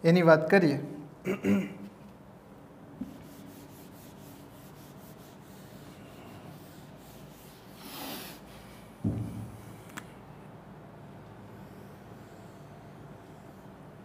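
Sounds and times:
eraser wiping whiteboard: 0:03.0 - 0:08.9, 0:11.5 - 0:14.0
sharp knock: 0:09.0 - 0:09.6.

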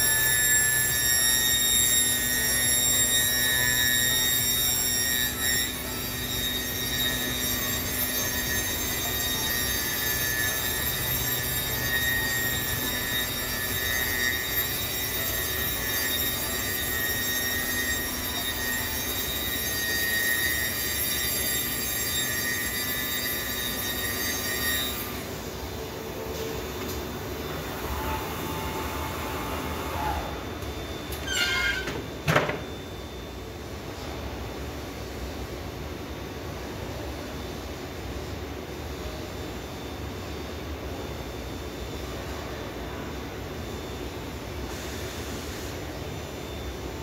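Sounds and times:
machine noise: 0:00.0 - 0:36.2
high-pitched machine whine: 0:00.0 - 0:47.0.

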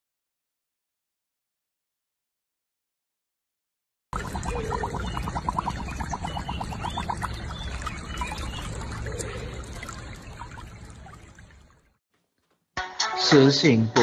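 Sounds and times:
water sloshing and trickling: 0:04.2 - 0:12.0.

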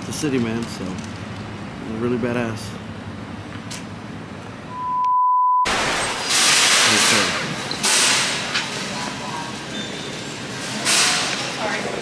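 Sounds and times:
steady beep tone: 0:04.7 - 0:05.7
loud rushing noise: 0:05.7 - 0:08.5.

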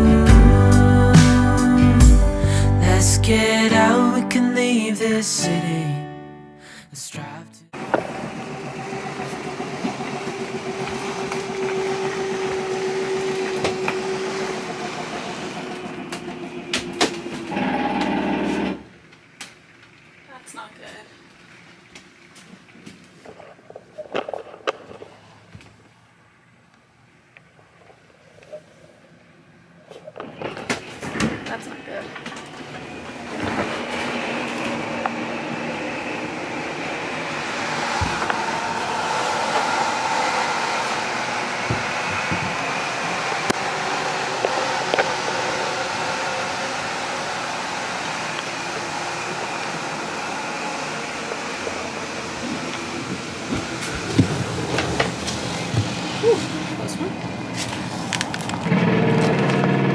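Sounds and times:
machine motor humming: 0:07.8 - 0:18.8, 0:31.7 - 0:59.9
mechanical rushing noise: 0:32.2 - 0:59.9.

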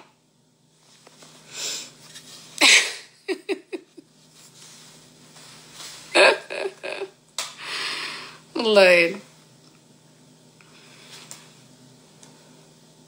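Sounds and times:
faint steady hum: 0:00.0 - 0:13.0
woman laughing: 0:02.6 - 0:04.1, 0:06.1 - 0:07.2
woman breathing out: 0:07.6 - 0:08.5.

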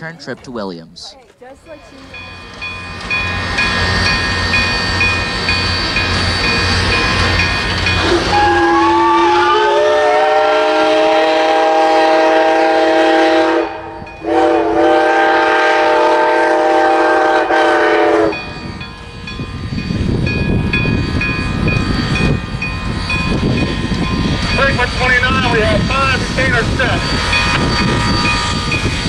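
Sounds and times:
low rumble of train: 0:01.4 - 0:29.0
locomotive bell ringing: 0:01.6 - 0:09.7, 0:13.6 - 0:15.4, 0:17.4 - 0:29.0
steam locomotive whistle blasts: 0:02.9 - 0:18.6, 0:25.4 - 0:28.9.

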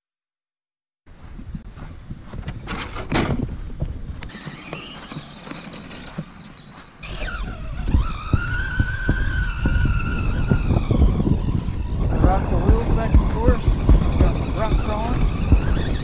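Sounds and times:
toy truck electric motor whining: 0:04.3 - 0:16.0.

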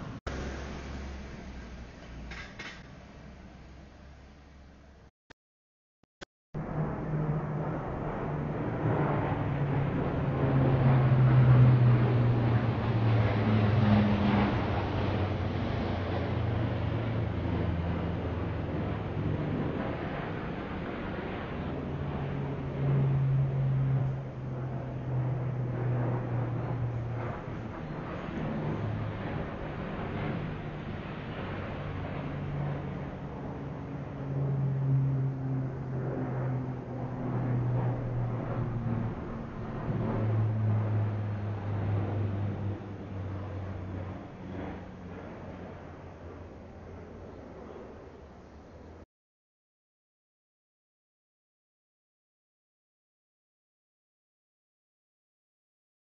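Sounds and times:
aircraft engine drone: 0:00.0 - 0:05.1, 0:06.6 - 0:49.1.

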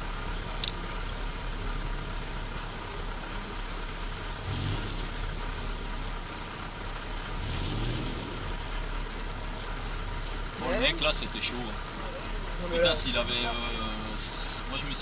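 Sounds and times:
buggy engine revving: 0:00.0 - 0:15.0.

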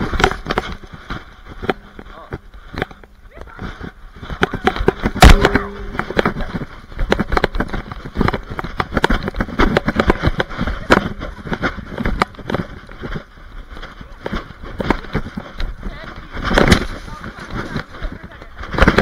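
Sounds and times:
camera knocks and thumps: 0:04.3 - 0:13.3.

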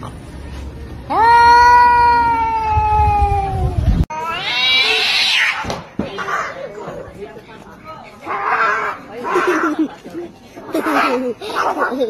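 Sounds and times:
cat yowling: 0:04.1 - 0:05.6.

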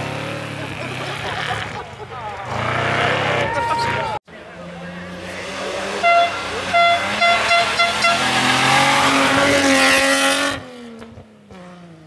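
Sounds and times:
rally car engine passing: 0:00.0 - 0:12.0
car horn toots: 0:05.8 - 0:09.6.

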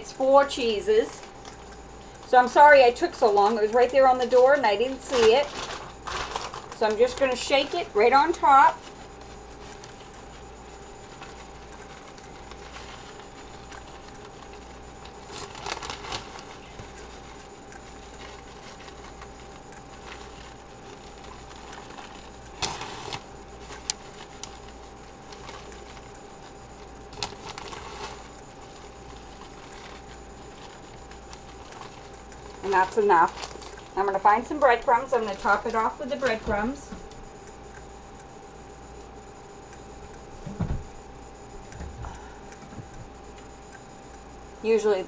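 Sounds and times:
low background hum: 0:00.0 - 0:45.0
plastic bag crinkling: 0:03.2 - 0:09.0, 0:11.1 - 0:24.7, 0:27.1 - 0:36.8.

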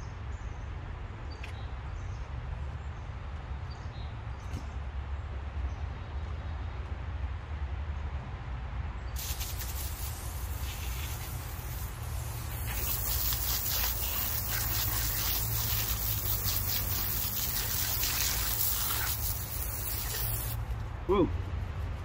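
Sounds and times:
hose nozzle spraying water: 0:09.2 - 0:20.6
water spattering: 0:09.2 - 0:20.6.

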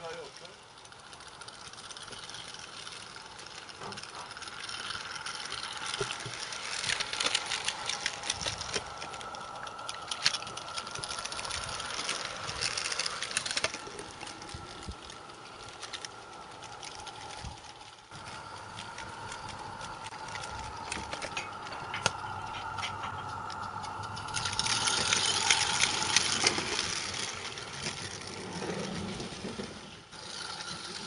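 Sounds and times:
model steam locomotive chuffing: 0:00.0 - 0:31.0
wheels clattering on track: 0:00.0 - 0:31.0.

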